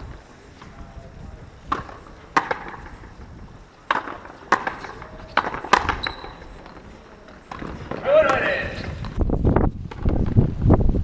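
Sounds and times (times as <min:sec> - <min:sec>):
rackets smacking rubber ball: 0:01.6 - 0:03.2, 0:03.8 - 0:09.2.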